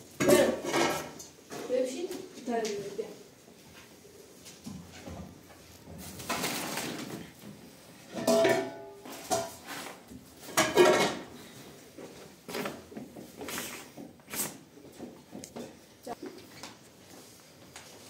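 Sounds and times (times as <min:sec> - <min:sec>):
dishes clinking and knocking: 0:00.1 - 0:01.4, 0:08.0 - 0:09.7, 0:10.4 - 0:11.5.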